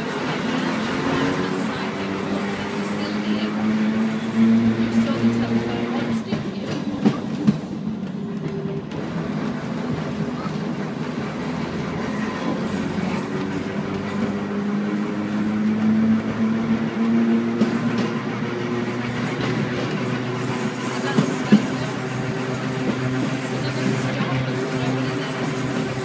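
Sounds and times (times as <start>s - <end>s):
tram wheels rattling on rails: 0.0s - 26.0s.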